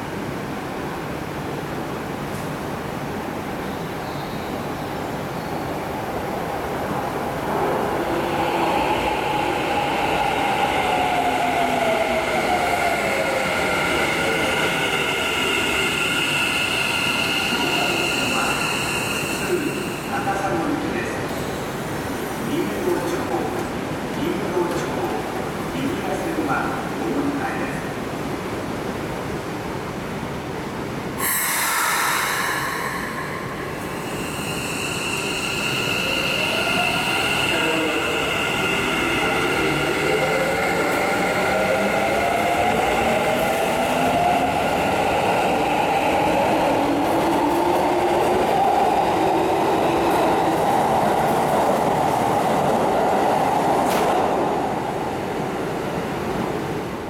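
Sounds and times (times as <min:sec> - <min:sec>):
train wheels squealing on track: 0:08.9 - 0:21.8, 0:31.2 - 0:46.8.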